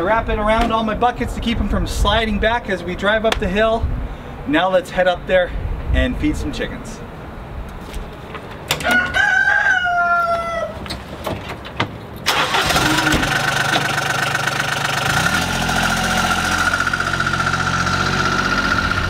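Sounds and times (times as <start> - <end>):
rooster crowing: 8.8 - 10.8
utility vehicle engine running: 12.2 - 19.0.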